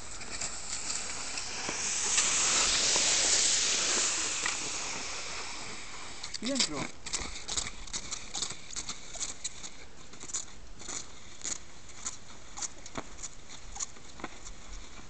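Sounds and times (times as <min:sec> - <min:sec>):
skis crunching and scraping on snow: 0:00.0 - 0:15.0.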